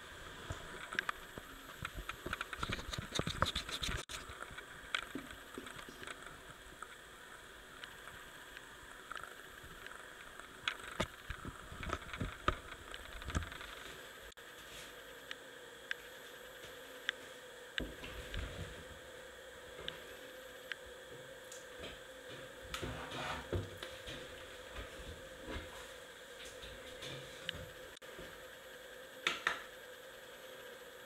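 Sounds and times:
finger scratching and clicking on phone: 2.4 - 4.2.

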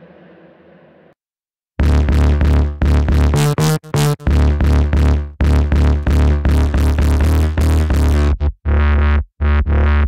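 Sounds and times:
deep synth bass line: 1.8 - 10.0.

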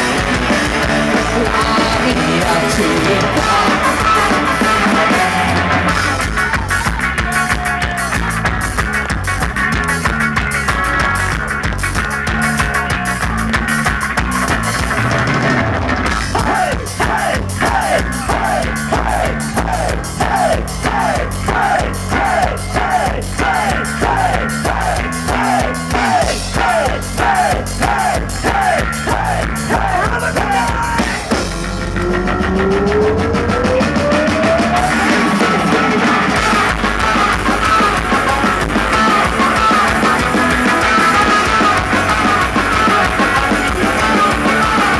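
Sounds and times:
ska-punk band playing live: 0.0 - 44.9.

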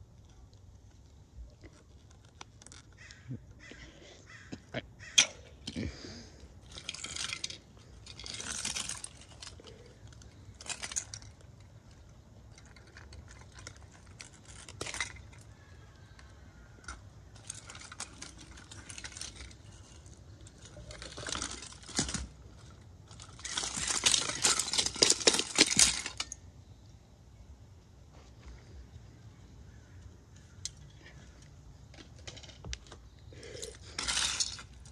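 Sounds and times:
plastic pieces clattering on concrete: 6.6 - 16.3, 16.9 - 26.4, 32.0 - 34.9.

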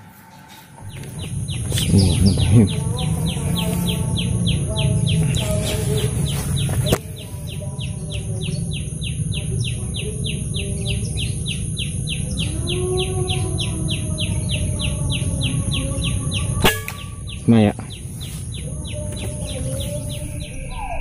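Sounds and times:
bird chirping: 0.0 - 21.0
low rumble: 0.8 - 16.5.

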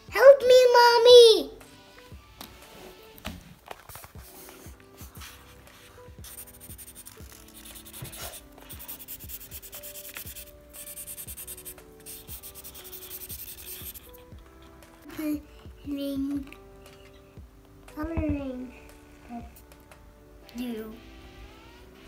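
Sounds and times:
marker pens scribbling on paper: 3.7 - 15.0.

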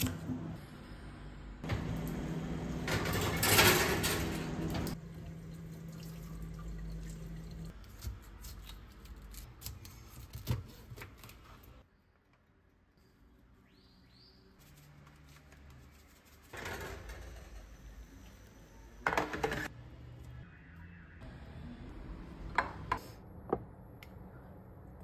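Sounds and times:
water running: 4.6 - 7.7.

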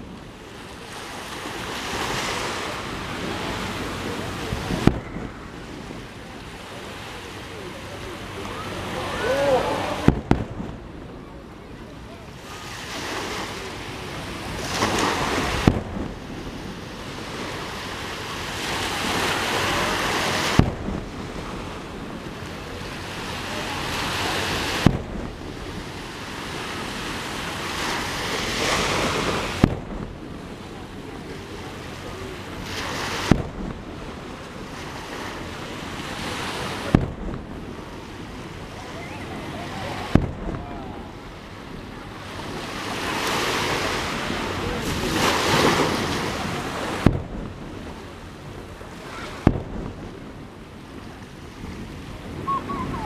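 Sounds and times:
sea waves washing ashore: 0.0 - 53.0
fireworks booms: 4.5 - 6.1, 10.0 - 11.2, 14.6 - 16.9, 20.3 - 22.3, 24.6 - 26.0, 29.2 - 30.4, 33.2 - 34.7, 36.8 - 38.7, 40.0 - 41.0, 44.8 - 48.6, 49.3 - 50.5.

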